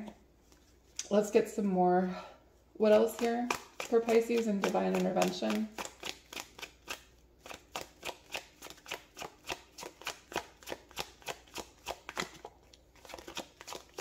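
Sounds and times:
cards being shuffled: 2.9 - 14.0.

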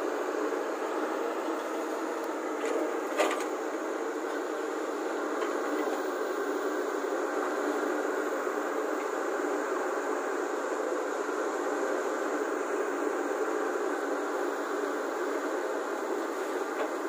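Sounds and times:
excavator diesel engine running: 0.0 - 9.7, 13.8 - 17.0.

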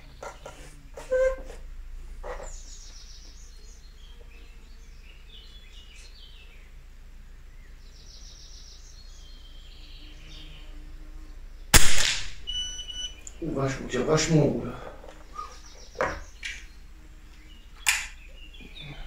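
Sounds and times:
birds chirping faintly: 0.0 - 19.0
steady low hum: 0.0 - 19.0
rifle shot crack: 11.7 - 12.5.

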